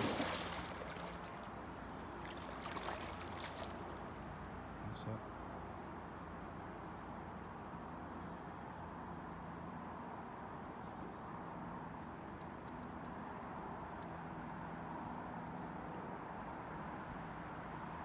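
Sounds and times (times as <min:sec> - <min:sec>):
river hiss: 0:00.0 - 0:01.5
small sharp clicks: 0:12.4 - 0:13.2.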